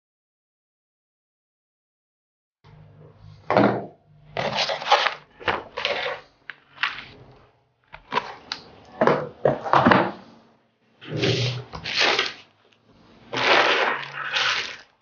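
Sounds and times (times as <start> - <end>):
cardboard rustling and scraping: 4.4 - 8.5, 11.0 - 12.5, 13.1 - 14.8.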